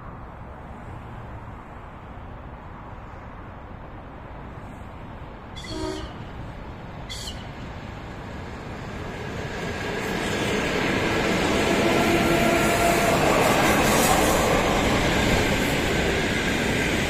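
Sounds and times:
train horn toots: 0:05.6 - 0:06.3, 0:11.8 - 0:13.5
train wheels rumbling on rails: 0:05.6 - 0:17.0.

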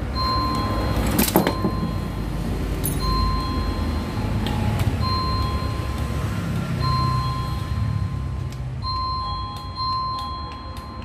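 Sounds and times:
electric bell ringing: 0:00.2 - 0:04.4, 0:06.8 - 0:11.0.

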